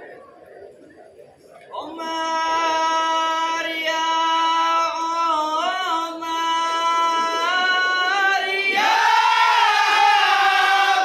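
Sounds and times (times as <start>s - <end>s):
man singing unaccompanied: 1.8s - 8.6s.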